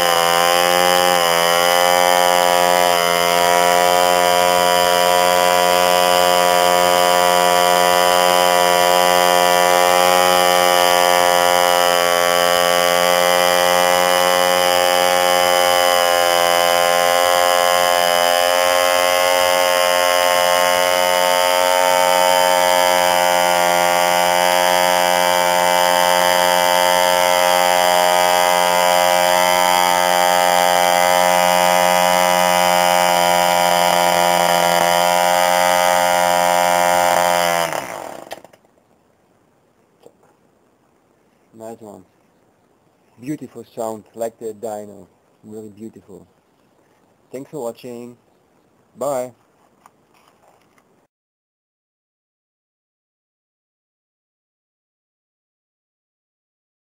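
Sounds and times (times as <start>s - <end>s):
model diesel engine running: 0.0s - 38.6s.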